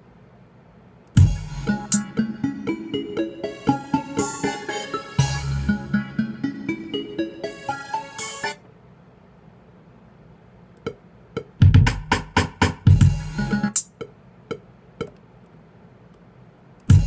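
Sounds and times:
electronic drum hits: 1.2 - 2.1, 10.9 - 13.4.

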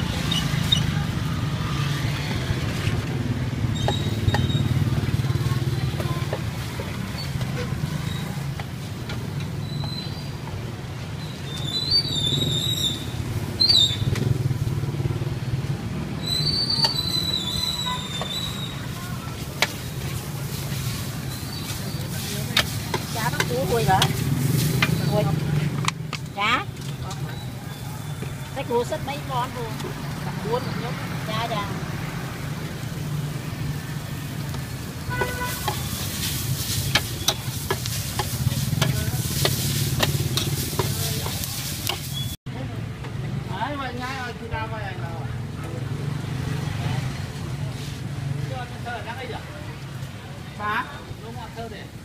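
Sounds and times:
high chirps: 11.2 - 14.1, 16.2 - 19.0, 35.7 - 42.4.

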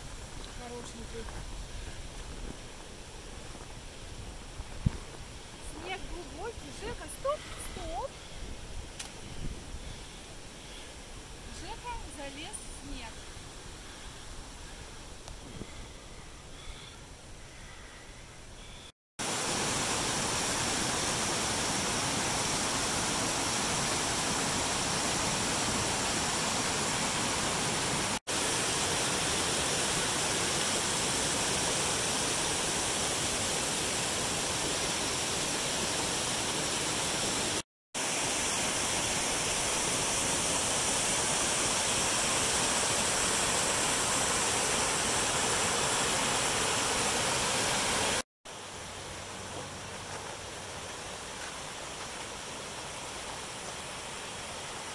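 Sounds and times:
creek water rushing over rocks: 19.2 - 54.9.

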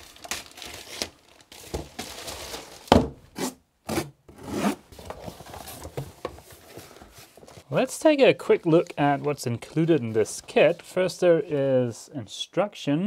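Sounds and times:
plastic rustling and crinkling: 0.0 - 3.3, 4.9 - 11.7
cardboard box handled: 3.9 - 7.7.

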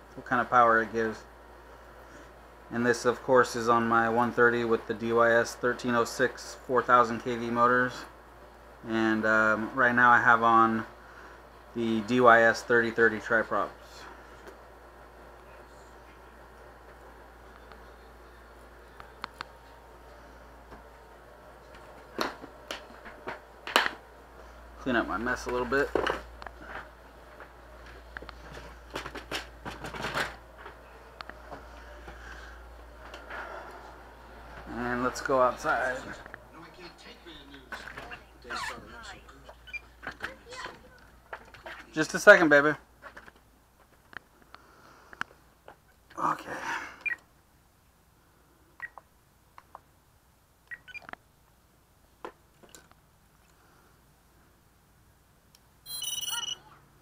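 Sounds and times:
small items rustling and clattering: 25.4 - 30.8
radio transmitter beeps: 55.9 - 56.7.

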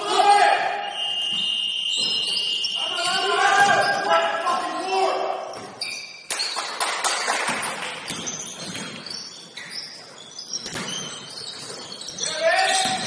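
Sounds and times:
sneakers squeaking on court: 0.9 - 13.0
basketball thumping on gym floor: 10.6 - 11.2, 12.7 - 13.0.

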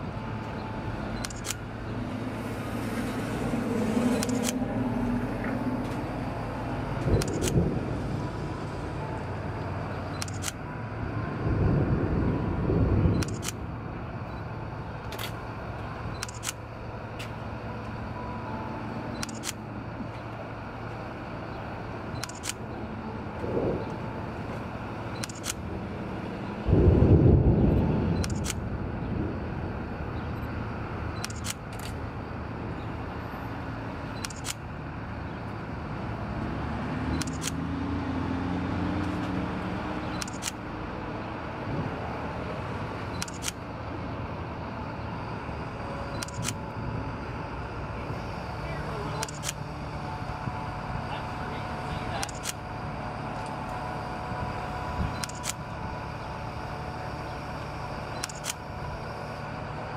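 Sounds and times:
crane diesel engine running: 0.0 - 59.9
camera shutter clicks: 1.2 - 1.6, 4.2 - 4.6, 10.2 - 10.6, 16.2 - 16.6, 19.2 - 19.6, 22.2 - 22.6, 25.2 - 25.6, 28.2 - 28.6, 31.2 - 32.0, 34.2 - 34.6, 37.2 - 37.6, 40.2 - 40.6, 43.2 - 43.6, 46.2 - 46.6, 49.2 - 49.6, 52.2 - 52.6, 55.2 - 55.6, 58.2 - 58.6
low rumble of thunder: 7.0 - 8.7, 11.3 - 13.2, 23.4 - 24.5, 26.6 - 30.2.

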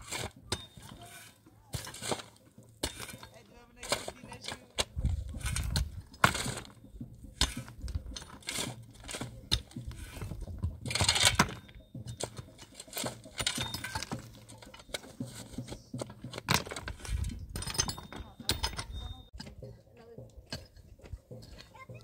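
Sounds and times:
scrape: 0.0 - 10.4
hard objects knocking and clinking: 0.0 - 22.0.

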